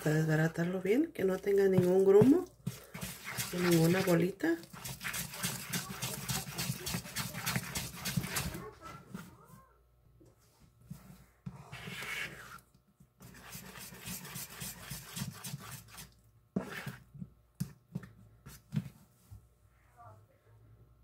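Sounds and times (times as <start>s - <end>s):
utensil scraping batter in bowl: 1.4s - 8.7s, 10.9s - 12.6s, 13.2s - 17.2s.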